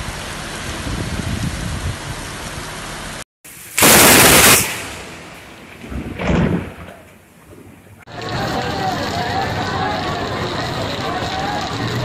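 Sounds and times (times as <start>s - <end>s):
heavy rain pouring: 0.0s - 12.0s
thunder crash: 3.8s - 7.8s.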